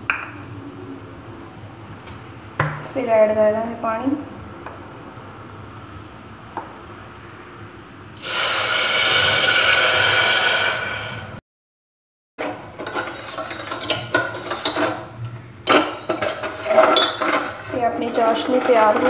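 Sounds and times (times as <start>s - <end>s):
spoon stirring in saucepan: 12.4s - 19.0s.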